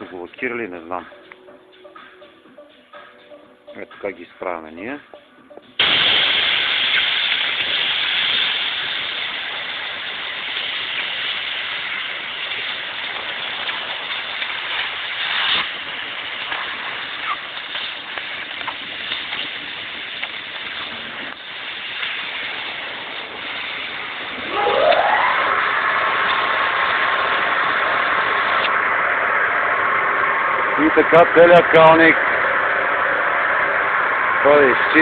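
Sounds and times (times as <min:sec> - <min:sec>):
compressed air hissing: 0:05.8 - 0:24.7.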